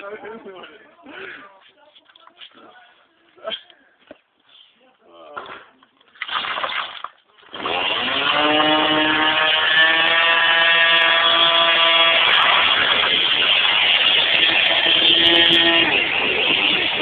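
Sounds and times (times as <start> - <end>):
string trimmer engine running: 7.5 - 17.0.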